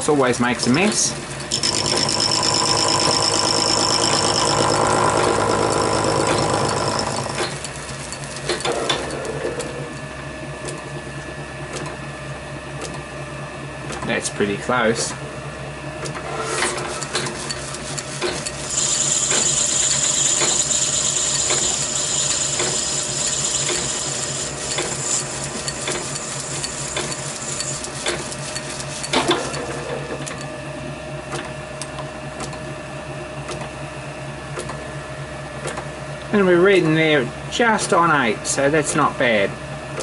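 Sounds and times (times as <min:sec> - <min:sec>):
lathe motor hum: 0:00.6 - 0:10.0, 0:16.2 - 0:30.5
lathe tool cutting brass: 0:01.4 - 0:08.6, 0:17.0 - 0:29.2.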